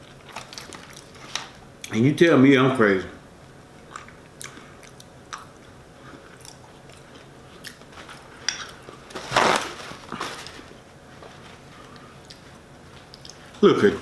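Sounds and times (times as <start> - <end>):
wet chewing sounds: 3.8 - 9.0, 11.8 - 13.5
paper towel tearing: 9.1 - 10.6.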